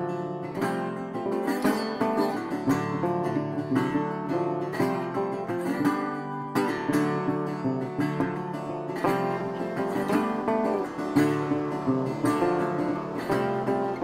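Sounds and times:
acoustic guitar tune: 0.0s - 14.0s.

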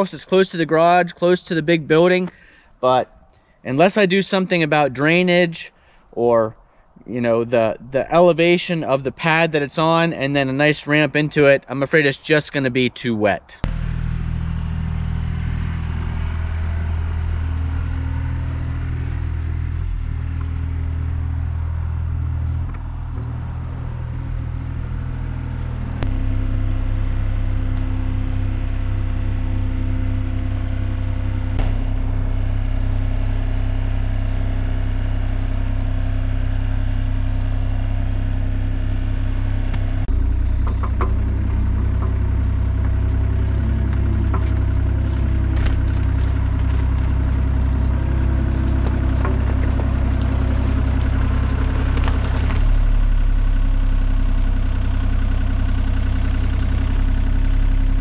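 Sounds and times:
excavator diesel engine running: 13.6s - 58.0s.

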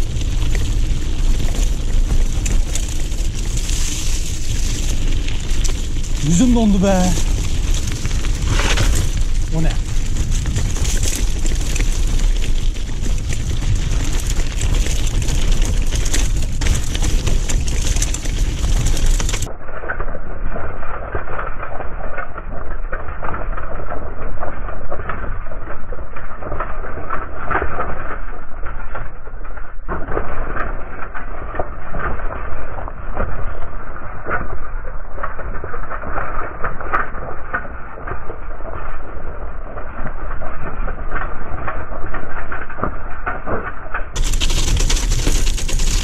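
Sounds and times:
bike rattling: 0.0s - 19.5s, 26.4s - 46.0s
bike tyres crunching over stones: 0.0s - 19.5s, 29.9s - 46.0s.

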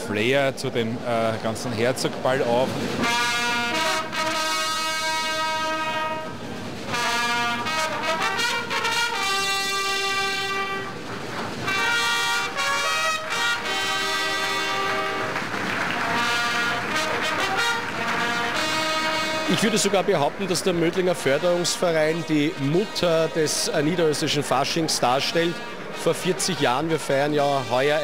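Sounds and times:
trumpets playing a fanfare: 2.9s - 28.0s.

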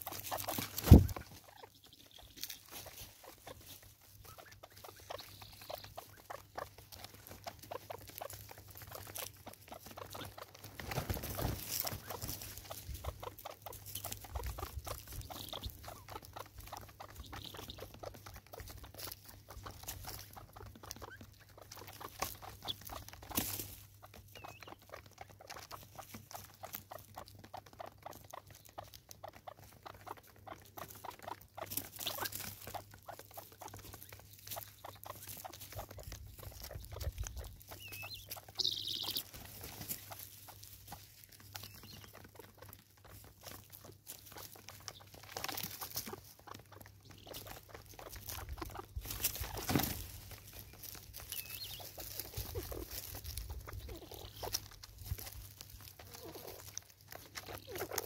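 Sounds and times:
short high bird calls: 37.8s - 39.2s.

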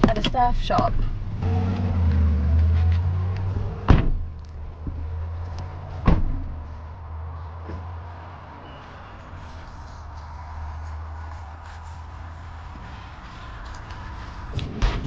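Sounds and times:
car engine humming: 0.0s - 15.0s
car door shutting thump: 3.8s - 4.2s, 6.0s - 6.4s.

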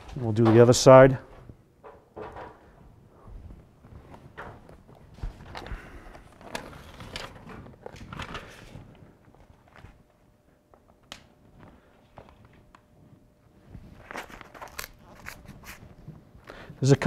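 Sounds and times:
tape and paper crinkling: 4.1s - 10.0s, 13.8s - 16.1s.

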